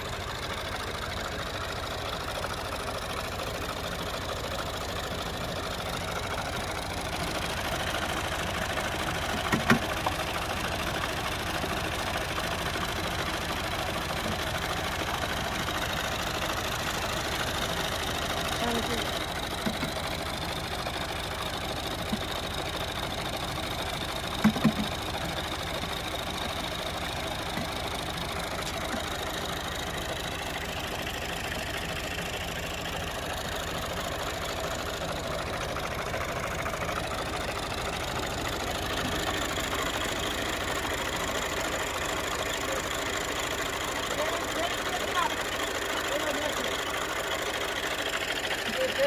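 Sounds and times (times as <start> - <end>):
tractor diesel engine idling: 0.0 - 49.0
sharp knocks: 24.4 - 24.9.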